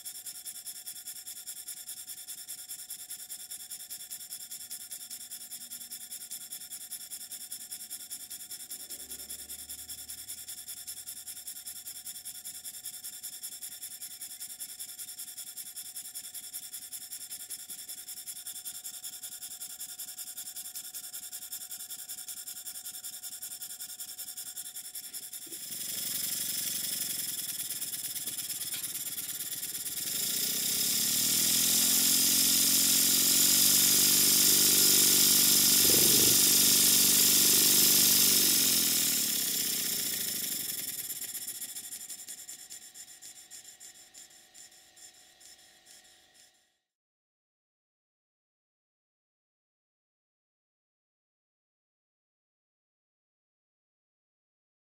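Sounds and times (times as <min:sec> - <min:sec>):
model steam engine running: 0:00.0 - 0:46.6
loud mechanical sound: 0:25.5 - 0:42.0
pitched hum: 0:30.0 - 0:40.1.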